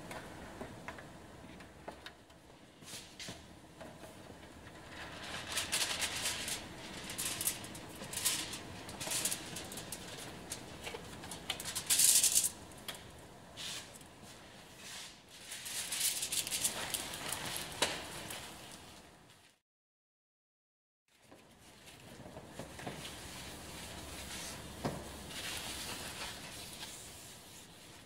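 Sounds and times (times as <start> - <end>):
paper towel rubbing foil: 4.8 - 10.8, 15.0 - 17.8, 23.1 - 28.0
aluminium foil crinkling: 4.8 - 12.6, 15.4 - 18.8.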